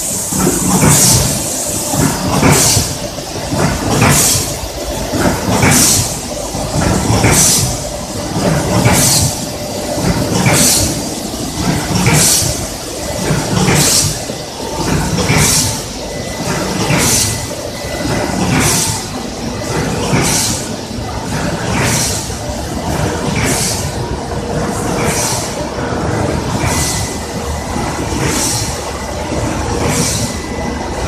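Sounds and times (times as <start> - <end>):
sharp machine hiss: 0.0 - 4.8, 5.4 - 6.4, 8.8 - 20.9
machinery low rumble: 0.0 - 31.0.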